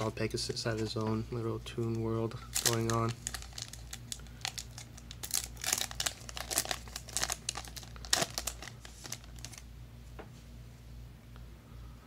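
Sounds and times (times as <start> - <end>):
steady low hum: 0.0 - 12.0
foil pack crinkling and tearing: 2.0 - 9.6.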